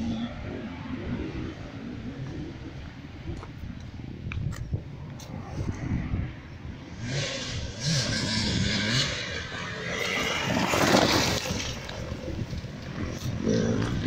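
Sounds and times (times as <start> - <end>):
motorcycle engine revving: 6.9 - 14.0.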